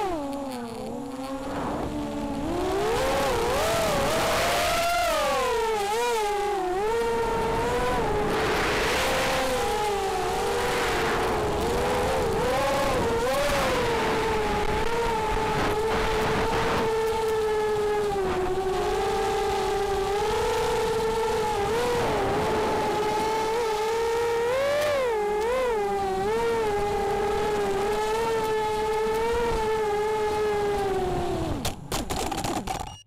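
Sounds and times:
quadcopter motors whining: 0.0s - 33.0s.

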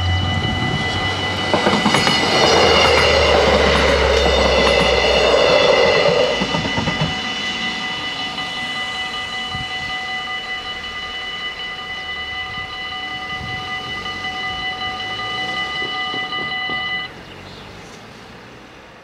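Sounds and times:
car driving past: 0.0s - 6.7s
level crossing bells ringing: 0.0s - 17.5s.

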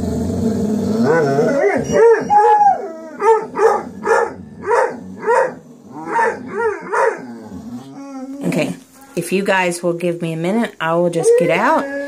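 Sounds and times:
dog howling: 0.9s - 9.2s, 11.2s - 12.0s
dog barking: 3.2s - 7.2s.

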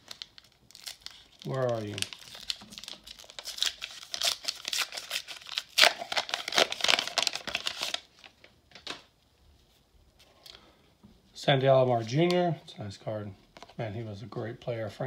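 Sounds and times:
foil wrapper crinkling and tearing: 0.0s - 8.5s.

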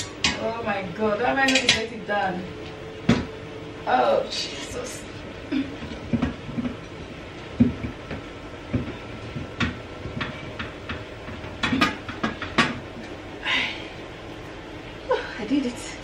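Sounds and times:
kitchenware knocking and clattering: 7.6s - 12.8s.

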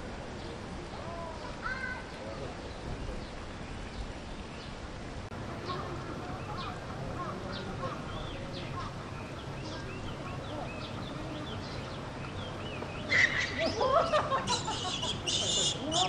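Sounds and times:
birds chirping: 0.3s - 16.0s
outdoor background hum: 4.5s - 16.0s
loud calls or voices: 5.3s - 16.0s.

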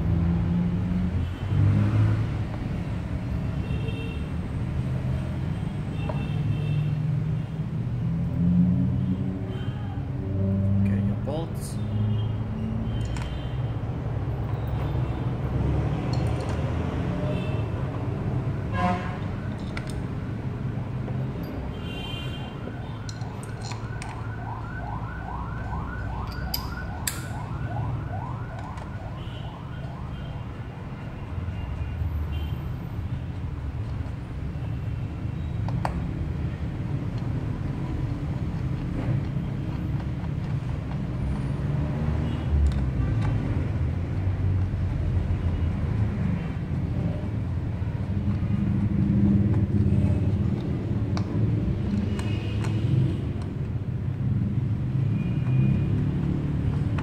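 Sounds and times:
low traffic rumble: 0.0s - 57.0s
siren yelping: 22.5s - 30.3s.

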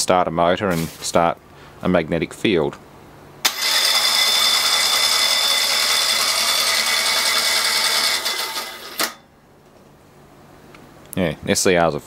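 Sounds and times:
starter motor whirring: 3.4s - 9.2s.

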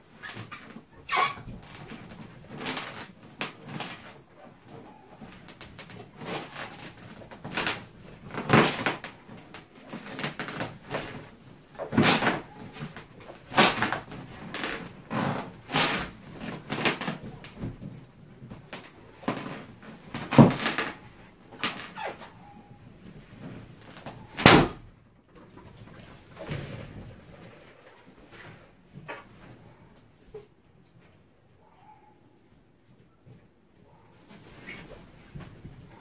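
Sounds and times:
rubber balloon squeaking: 0.1s - 17.9s, 18.7s - 24.9s
balloon thumps and creaks: 0.1s - 29.6s.

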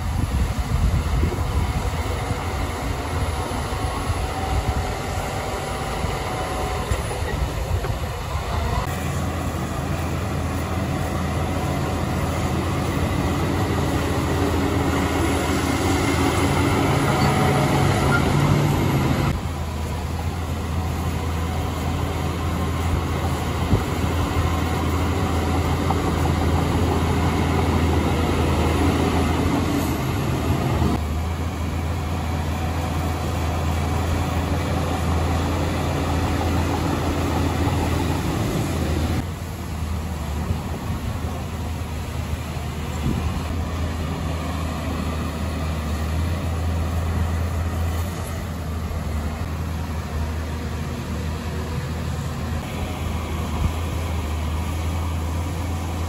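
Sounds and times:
bulldozer diesel engine running: 0.0s - 56.0s.

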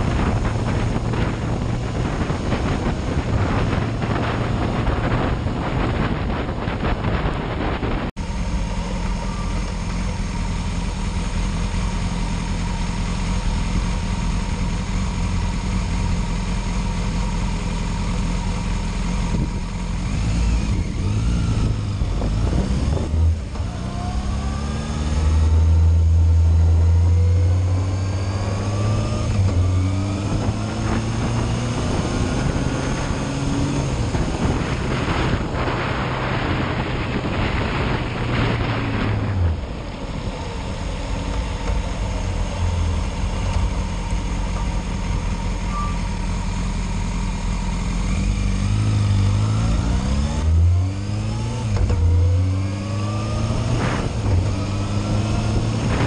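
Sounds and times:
motorcycle accelerating through gears: 0.0s - 56.0s
motorcycle engine idling: 8.2s - 20.1s, 39.8s - 48.1s.

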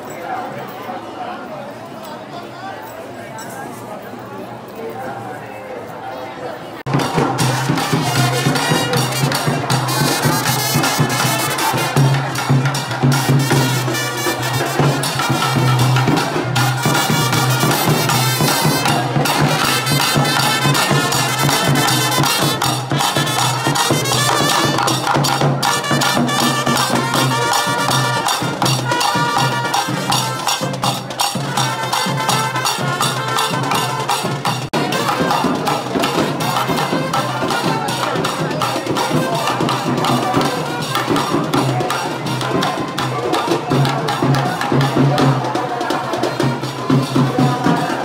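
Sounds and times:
hand drums beating: 6.9s - 48.0s
wind instrument melody: 7.0s - 43.3s.

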